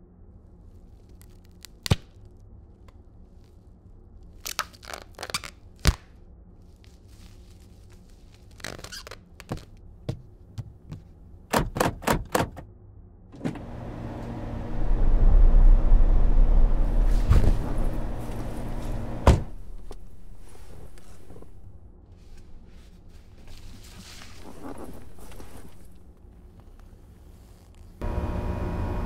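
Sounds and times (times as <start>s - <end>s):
deep rumbling noise: 13.7s - 22.0s
sharp thump: 16.8s - 19.9s.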